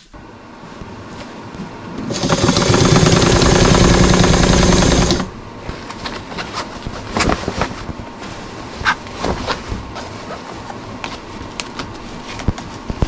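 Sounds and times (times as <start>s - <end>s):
sewing machine stitching: 2.0s - 5.3s
fabric rustling: 5.6s - 13.0s.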